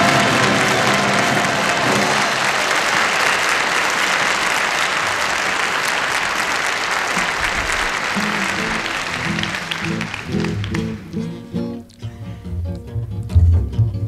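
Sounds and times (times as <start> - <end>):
audience applauding: 0.0 - 11.8
guitar playing: 8.1 - 14.0.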